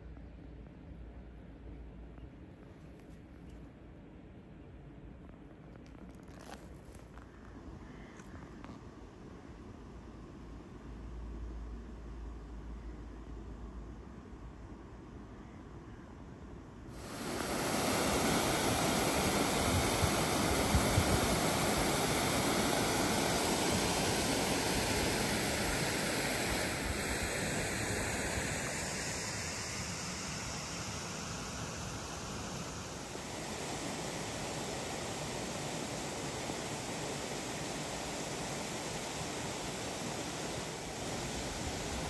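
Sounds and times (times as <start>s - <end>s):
wind and water rushing: 16.9s - 42.0s.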